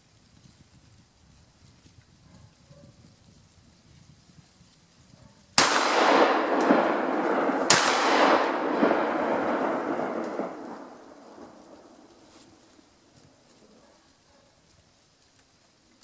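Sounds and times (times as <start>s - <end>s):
shotgun shots: 5.6s - 12.3s
rolling reverberation: 5.6s - 12.6s.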